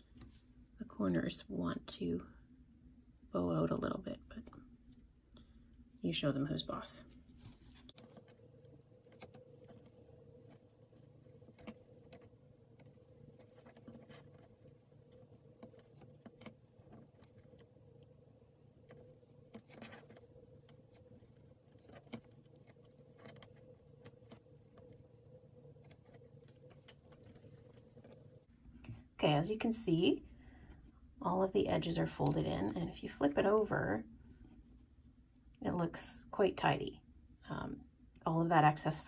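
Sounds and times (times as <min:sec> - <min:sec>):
faint steady hum: 0:00.0 - 0:39.0
fingertips scratching and rustling fabric: 0:07.1 - 0:28.5.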